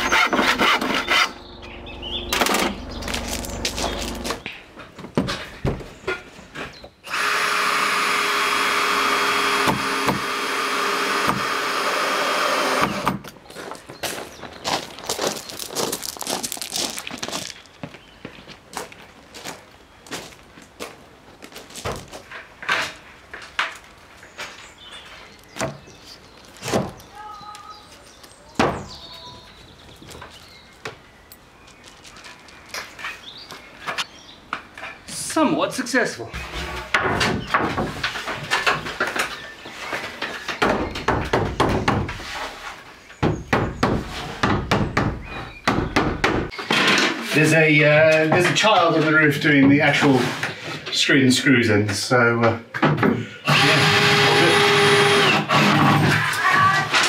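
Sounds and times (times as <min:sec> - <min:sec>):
knocks and thuds on timber: 0:05.0 - 0:06.2, 0:36.8 - 0:39.3, 0:40.5 - 0:42.2, 0:43.2 - 0:47.0
wooden boards knocking: 0:40.4 - 0:42.2.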